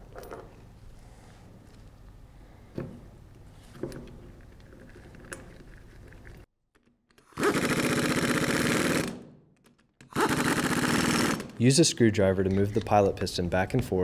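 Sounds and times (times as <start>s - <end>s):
impact wrench hammering: 7.4s - 9.3s, 10.0s - 11.6s.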